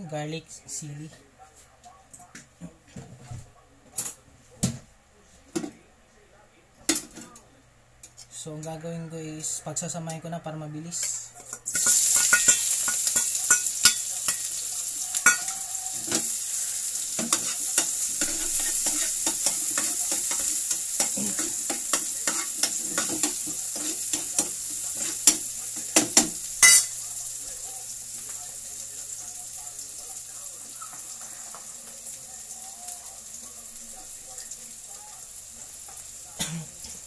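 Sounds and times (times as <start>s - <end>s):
spatula scraping a pan: 11.5s - 26.9s
food sizzling in hot oil: 11.5s - 37.0s.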